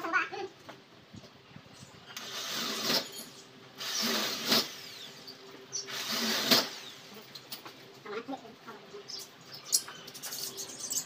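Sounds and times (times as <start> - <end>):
cordless drill driving screws: 3.8 - 5.2, 5.9 - 6.9.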